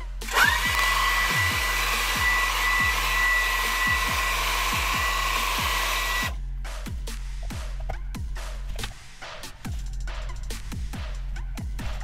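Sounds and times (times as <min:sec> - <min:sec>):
electronic music with bass sweeps: 0:00.0 - 0:12.0
hot-air blower whining: 0:00.3 - 0:06.3.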